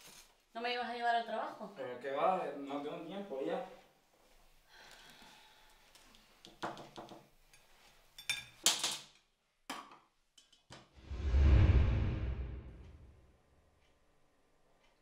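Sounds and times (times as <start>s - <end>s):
mugs clinking on a table: 8.2s - 9.0s
deep rumble: 11.0s - 13.2s.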